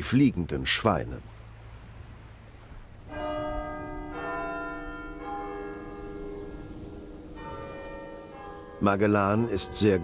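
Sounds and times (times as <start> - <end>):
church bells ringing: 3.1 - 10.0.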